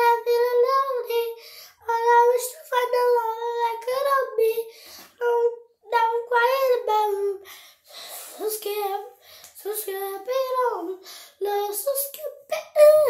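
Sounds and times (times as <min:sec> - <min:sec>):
girl singing unaccompanied: 0:00.0 - 0:13.0.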